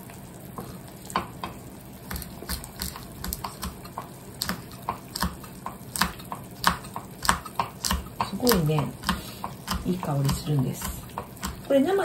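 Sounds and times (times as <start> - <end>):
bubbles popping in simmering curry: 0.0 - 12.0.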